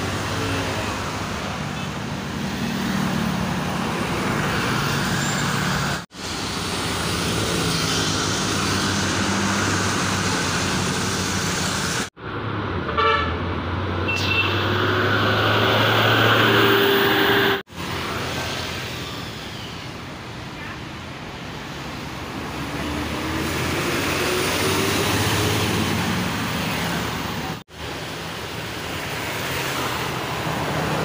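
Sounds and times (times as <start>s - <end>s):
buses driving past: 0.0s - 31.0s
road traffic noise: 0.0s - 31.0s
vehicle horn toot: 12.9s - 13.3s, 16.6s - 17.6s.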